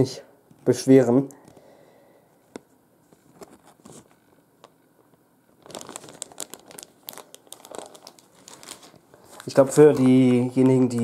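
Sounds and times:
plastic bags crinkling: 5.5 - 11.0.

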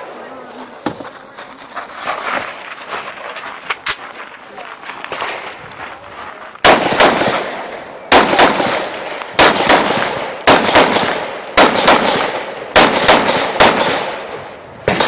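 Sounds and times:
gunshots with ringing echo: 6.6 - 15.0.

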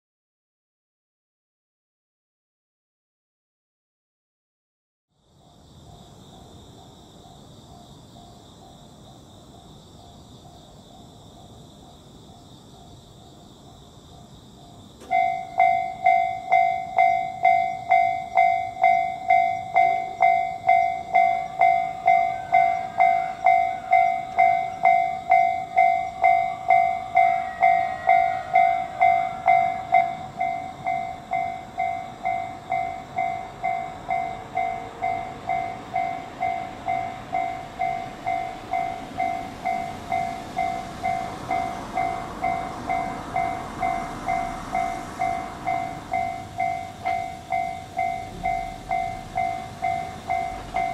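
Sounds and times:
approaching freight train rumble: 13.6 - 50.9
level-crossing warning bell: 14.1 - 50.9.

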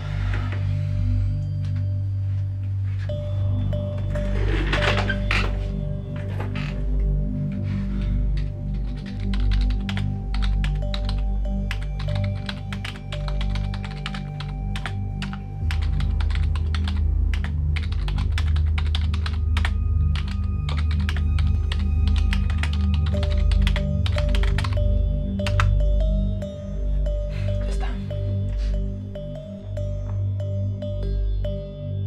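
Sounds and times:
background music with bass: 0.0 - 32.0
fast typing on keyboard: 8.7 - 24.8.

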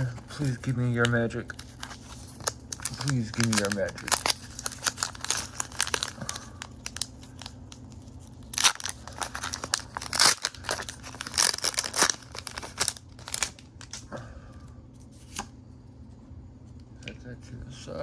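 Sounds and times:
foil wrapper crinkling and tearing: 0.2 - 14.1.

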